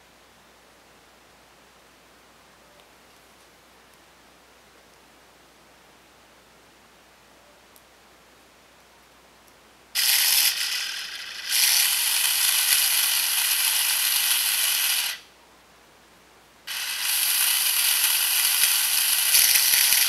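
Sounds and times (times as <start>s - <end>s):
power drill whining: 10.0s - 15.3s, 16.7s - 20.0s.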